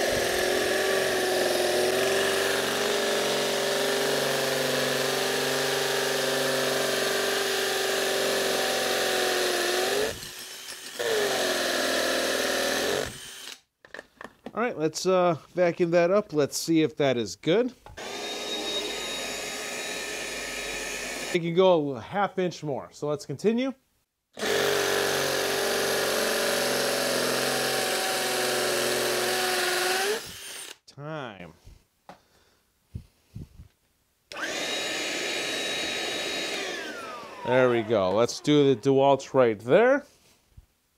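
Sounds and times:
hammer drill drilling into concrete: 0.0 - 13.7, 18.0 - 21.4, 24.4 - 30.8, 34.3 - 38.8.

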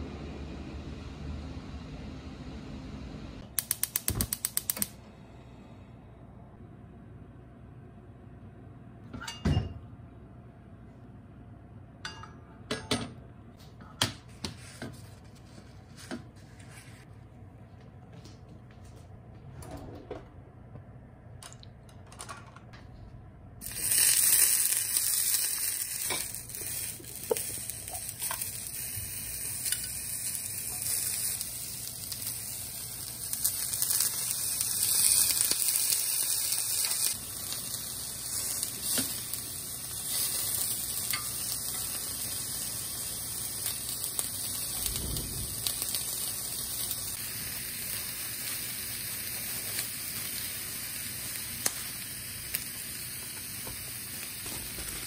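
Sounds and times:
food sizzling in hot oil: 23.6 - 55.0.

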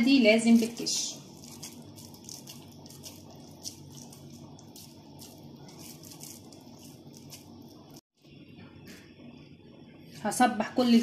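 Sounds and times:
hands squishing minced meat: 0.5 - 7.8.

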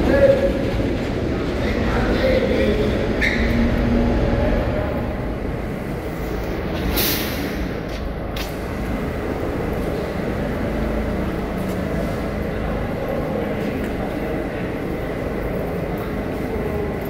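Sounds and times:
subway train wheels rumbling: 0.0 - 17.0
hissing air burst: 6.9 - 7.8.

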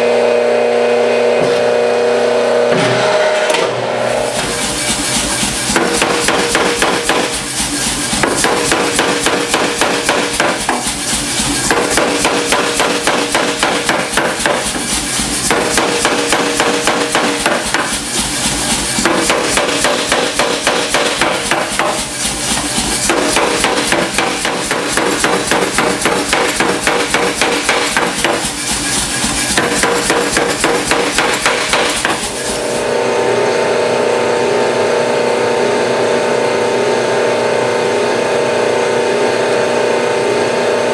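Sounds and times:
machine hum: 0.0 - 40.9
power hammer pounding steel: 2.6 - 32.6.

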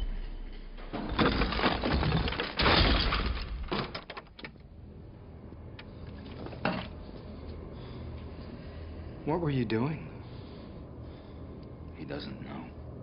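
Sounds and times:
debris clattering: 0.0 - 4.6
debris shattering and crumbling: 0.8 - 4.5.

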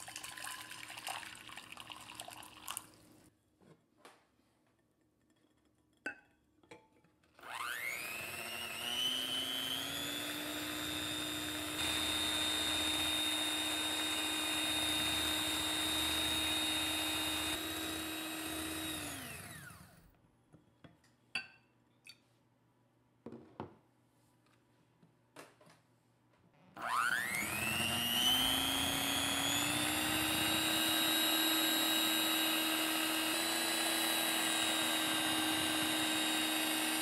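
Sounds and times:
electric hand mixer whining: 7.4 - 20.1, 26.8 - 37.0.

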